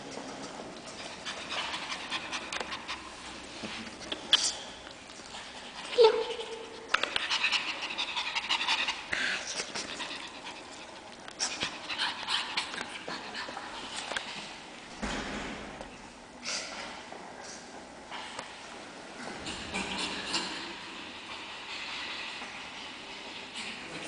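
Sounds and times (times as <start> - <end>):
puppies panting and scuffling: 0.0 - 14.8, 16.6 - 24.0
puppy whining: 5.8 - 9.0.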